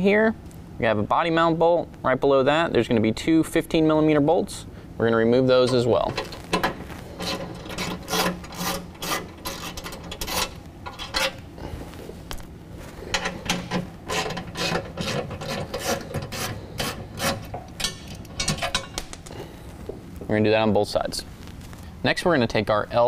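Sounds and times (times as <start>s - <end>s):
metal scraping: 5.6s - 12.2s, 12.8s - 19.1s.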